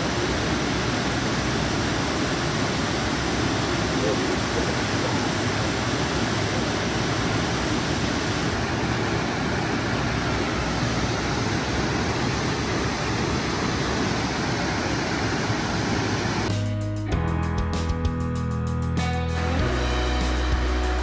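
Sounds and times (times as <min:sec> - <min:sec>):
falling water rushing: 0:00.0 - 0:16.5.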